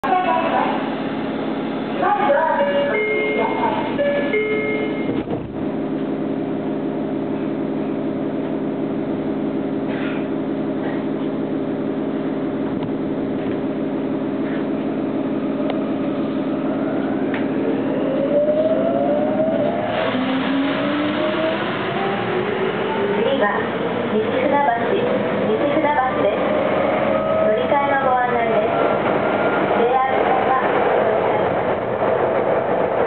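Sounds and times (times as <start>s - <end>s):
train equipment humming: 0.0s - 33.0s
train inverter rising whine: 0.0s - 33.0s
train doors shutting: 2.6s - 6.1s, 15.7s - 24.0s.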